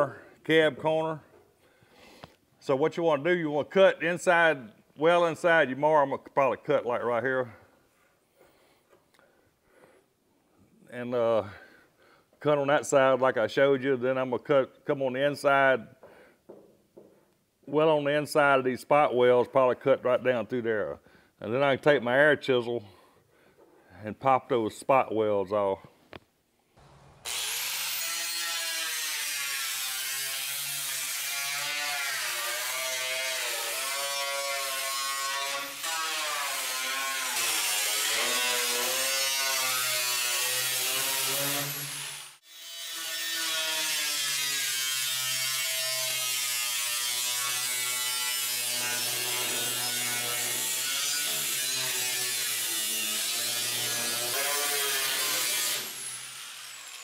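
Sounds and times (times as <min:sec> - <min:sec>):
angle grinder cutting metal: 0:26.9 - 0:57.0.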